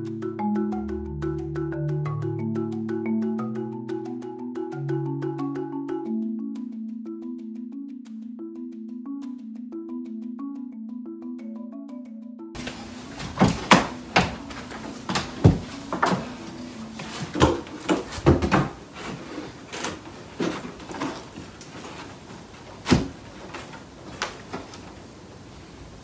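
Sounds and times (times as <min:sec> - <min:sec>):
heavy thuds: 0:12.6 - 0:23.7
wooden knocks and bumps: 0:12.6 - 0:24.9.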